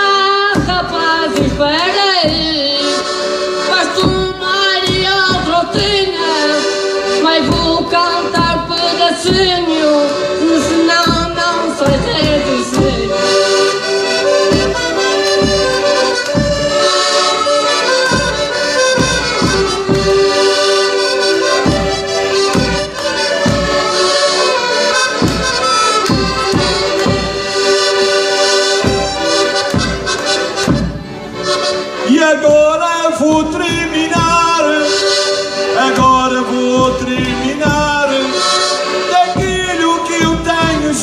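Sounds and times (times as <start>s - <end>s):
accordions playing: 0.0s - 41.0s
drum beat: 10.9s - 31.4s, 32.4s - 34.7s, 35.7s - 38.5s, 39.2s - 41.0s.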